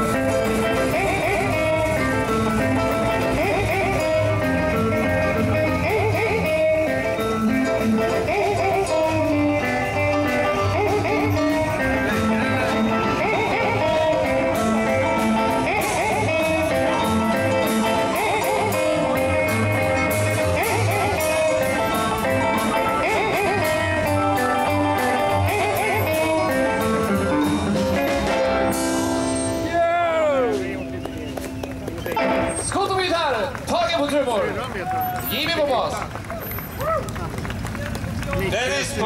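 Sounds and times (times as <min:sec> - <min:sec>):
electric guitar bent notes: 0:00.0 - 0:33.2
live rock and roll band: 0:00.0 - 0:39.0.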